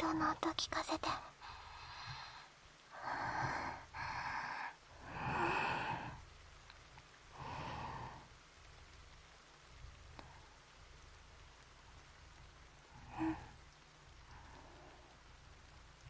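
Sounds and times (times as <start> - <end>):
faint steady hiss: 0.0 - 16.0
woman breathing softly: 1.2 - 6.4, 7.3 - 8.4, 12.8 - 15.4.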